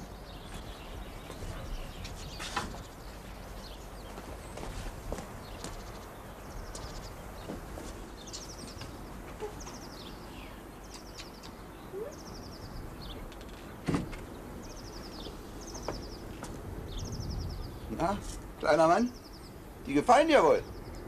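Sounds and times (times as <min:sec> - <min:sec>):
faint outdoor background noise: 0:00.0 - 0:21.0
songbird trilling: 0:08.1 - 0:13.4, 0:14.3 - 0:21.0.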